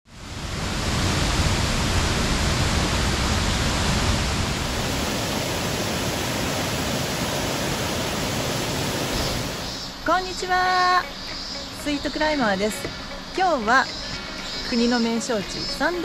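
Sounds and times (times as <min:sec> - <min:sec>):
rushing water: 0:00.1 - 0:11.8.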